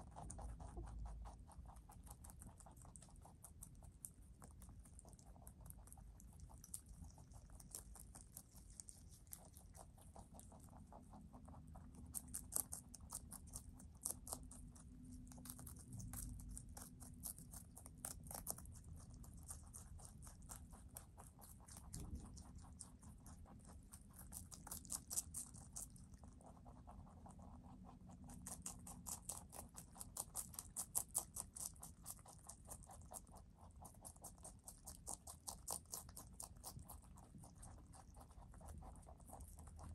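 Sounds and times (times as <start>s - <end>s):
rabbits chewing leafy greens: 0.0s - 39.9s.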